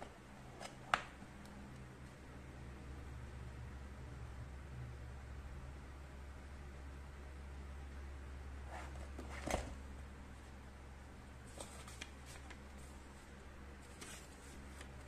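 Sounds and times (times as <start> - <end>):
paper cards rustling: 11.5 - 15.0.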